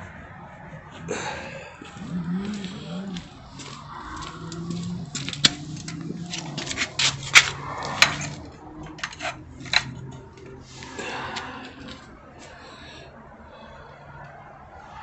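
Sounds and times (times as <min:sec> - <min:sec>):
sharp clicks and metallic knocks: 0:04.5 - 0:10.6.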